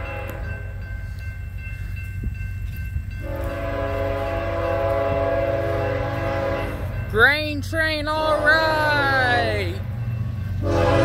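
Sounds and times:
locomotive air horn blasts: 0.0 - 0.6, 3.2 - 7.0, 8.2 - 9.0, 10.6 - 11.0.

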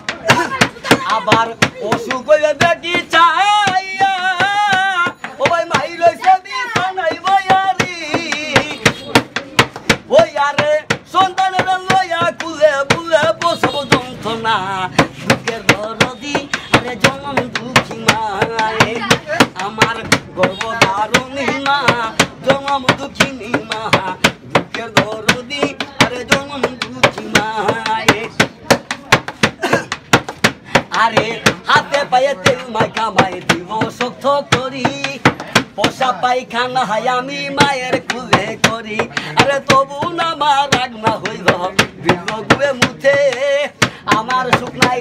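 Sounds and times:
man singing: 0.0 - 45.0.

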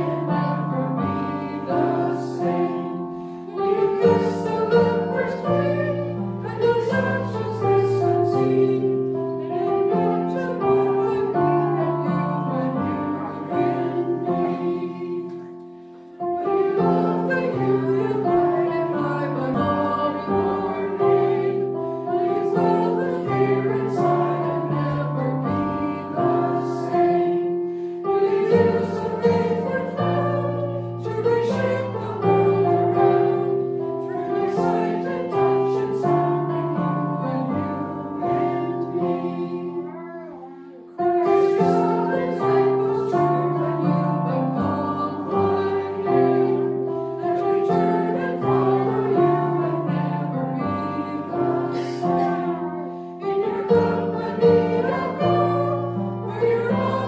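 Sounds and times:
congregation singing a hymn: 0.0 - 57.0.

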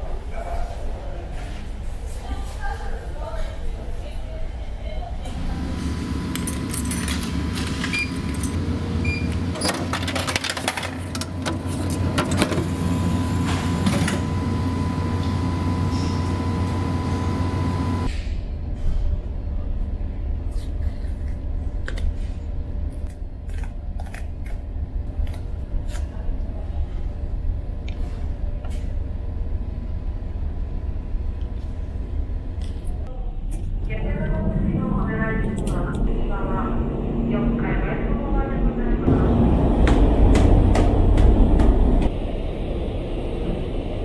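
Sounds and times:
ferry engines droning: 0.0 - 9.6, 10.4 - 20.4, 24.8 - 44.0
vending machine hum: 3.9 - 44.0
coins clinking into slot: 6.4 - 7.4.

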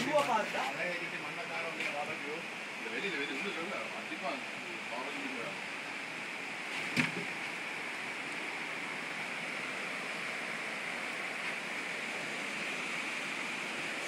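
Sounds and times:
river rushing over rapids: 3.9 - 14.0.

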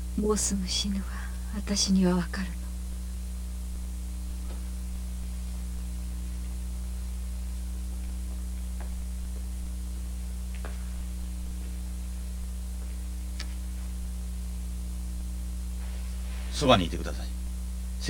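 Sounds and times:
light hiss: 0.0 - 18.0
low electrical hum: 0.0 - 18.0
faint clicks: 13.3 - 13.6.

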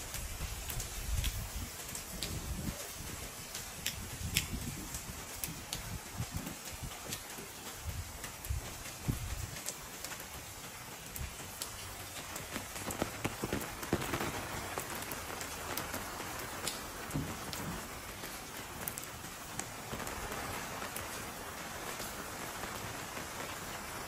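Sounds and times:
rain on stone paving: 0.0 - 24.0.

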